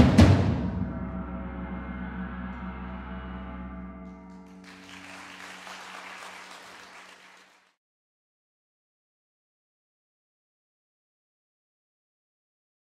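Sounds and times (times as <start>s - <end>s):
sustained metallic percussion chord: 0.0s - 5.4s
audience applause: 4.4s - 7.8s.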